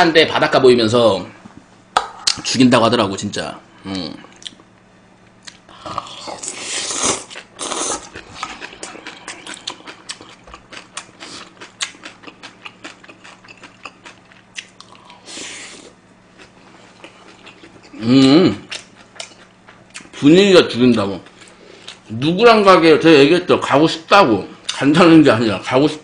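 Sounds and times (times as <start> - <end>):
chewing and lip-smacking: 5.4 - 18.0, 18.6 - 20.2
wet slurping: 6.2 - 9.9.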